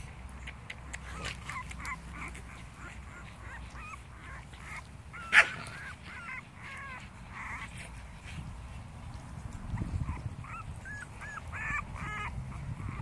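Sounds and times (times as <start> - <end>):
dogs whining and grunting: 0.4 - 8.5, 9.6 - 13.0
dog yelping: 1.0 - 7.8, 9.8 - 13.0.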